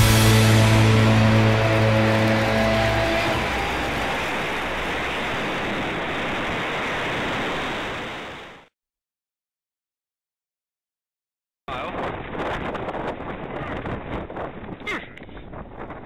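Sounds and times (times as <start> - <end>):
wind over microphone: 11.7 - 16.0.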